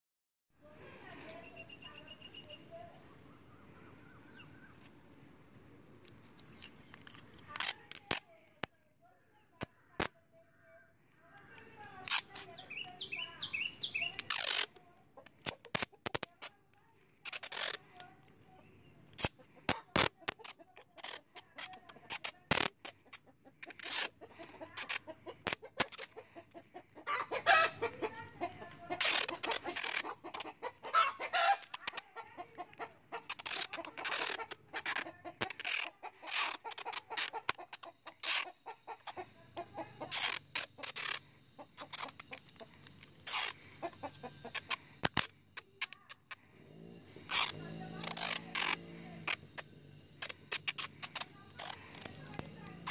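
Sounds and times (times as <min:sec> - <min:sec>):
adhesive tape pulled off roll: 0:06.0 - 0:08.7, 0:09.6 - 0:10.2, 0:11.5 - 0:12.7, 0:14.1 - 0:18.4, 0:19.0 - 0:26.2, 0:28.1 - 0:39.2, 0:40.0 - 0:52.9.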